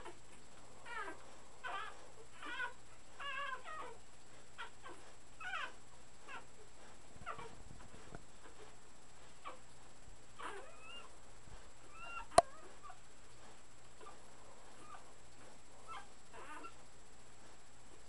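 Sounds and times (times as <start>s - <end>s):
puppies squeaking and whimpering: 0.8s - 4.0s, 4.6s - 6.4s, 10.4s - 11.1s, 11.9s - 13.0s, 15.8s - 16.8s
puppy whining: 0.8s - 9.7s, 10.4s - 16.9s.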